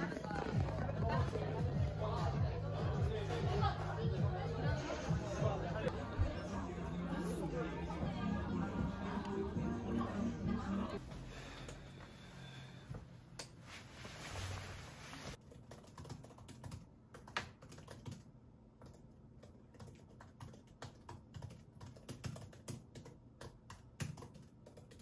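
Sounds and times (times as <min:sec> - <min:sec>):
laptop keyboard typing: 0:15.4 - 0:25.0.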